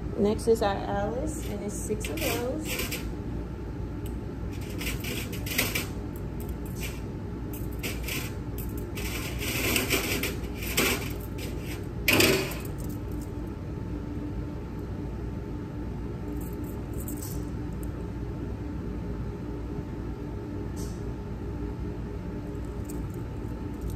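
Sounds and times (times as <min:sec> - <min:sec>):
metal instruments clinking: 0:01.4 - 0:03.0.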